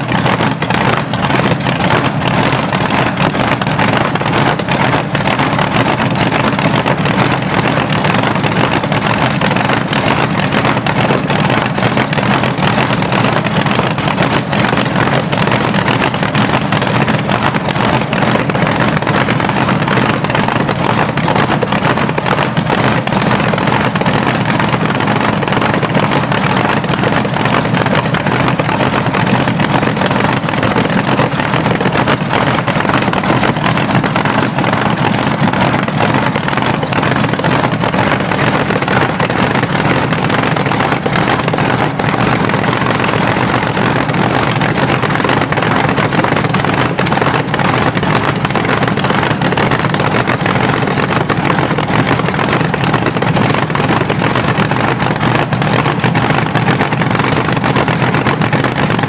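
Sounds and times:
supercharged engine idling: 0:00.0 - 0:46.0.

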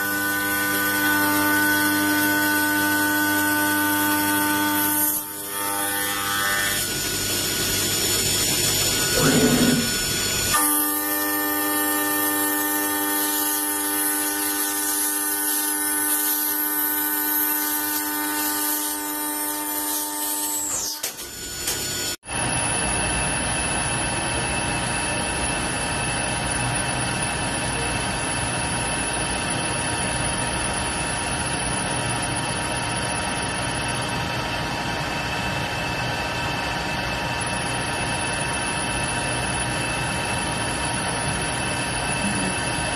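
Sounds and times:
machine whining: 0:00.0 - 0:42.9
metal lathe cutting hiss: 0:06.9 - 0:21.2.

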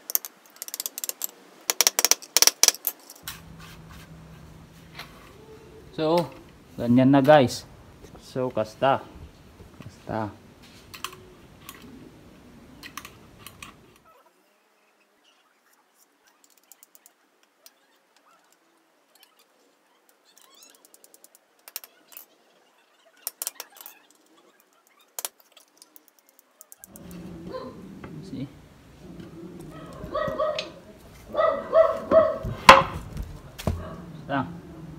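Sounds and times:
tools clicking on tile floor: 0:00.0 - 0:03.3.

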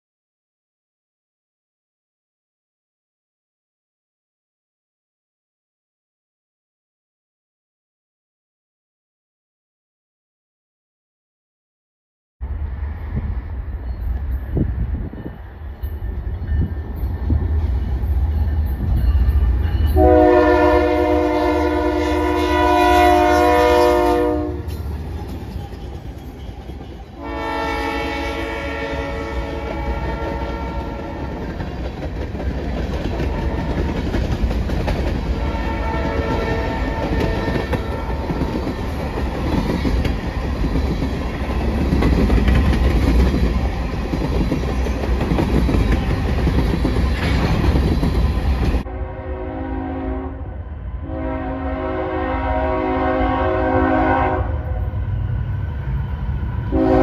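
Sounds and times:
train air horn blasts: 0:19.9 - 0:24.8, 0:27.2 - 0:31.5, 0:33.2 - 0:34.0, 0:35.3 - 0:38.6, 0:48.8 - 0:54.9, 0:56.7 - 0:57.0
train wheels clickety-clack: 0:24.6 - 0:27.2, 0:29.5 - 0:48.9.

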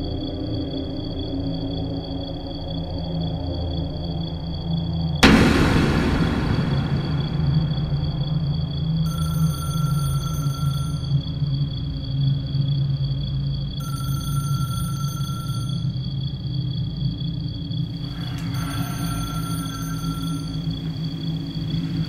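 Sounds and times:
low steady drone: 0:05.2 - 0:09.1.

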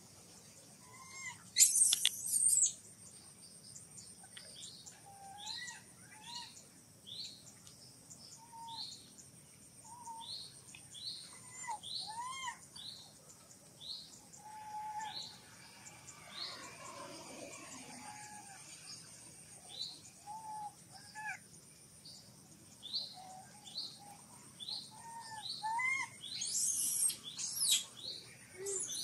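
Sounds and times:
monkey chirping calls: 0:00.8 - 0:02.8, 0:11.2 - 0:12.6, 0:20.4 - 0:21.4, 0:24.8 - 0:27.9, 0:28.6 - 0:29.0
baby monkey screaming: 0:11.4 - 0:12.6, 0:25.3 - 0:27.8.

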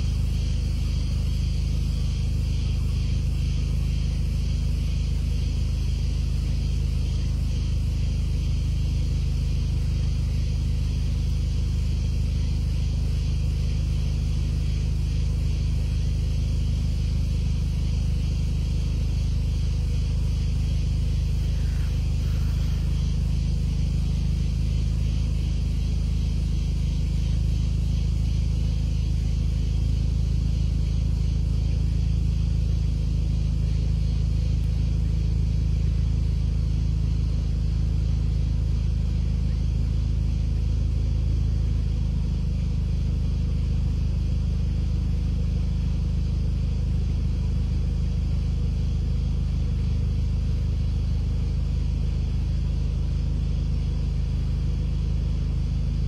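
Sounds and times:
vehicle engine rumbling: 0:20.1 - 0:33.1.

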